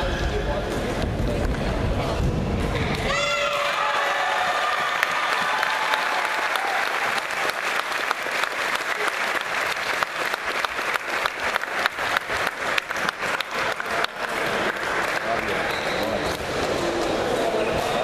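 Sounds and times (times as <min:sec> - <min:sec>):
spectators applauding: 0:03.5 - 0:17.6.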